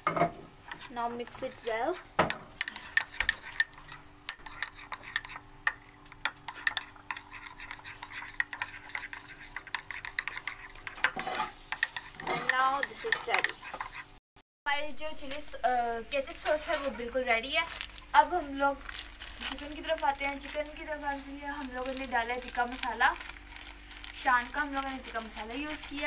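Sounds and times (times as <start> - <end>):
metal spoon scraping glass bowl: 2.6 - 14.1.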